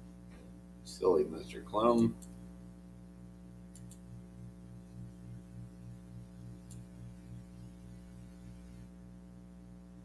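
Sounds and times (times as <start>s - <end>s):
pulsing electrical mains hum: 0.0s - 10.0s
faint click: 3.7s - 4.1s, 6.6s - 6.9s.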